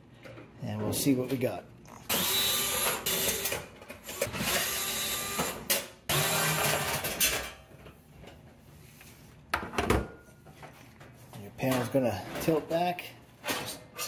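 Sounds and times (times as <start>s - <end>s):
cordless screwdriver motor whining: 2.1s - 3.5s.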